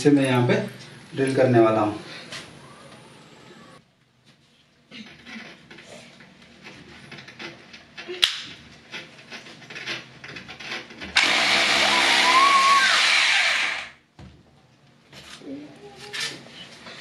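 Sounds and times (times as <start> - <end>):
hammer drill drilling into wall: 11.2 - 14.0.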